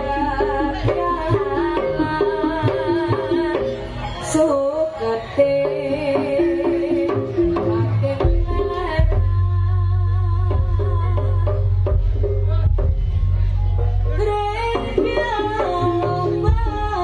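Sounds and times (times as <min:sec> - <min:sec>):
hand drums beating: 0:00.0 - 0:03.9, 0:05.6 - 0:17.0
deep low beat: 0:05.5 - 0:17.0.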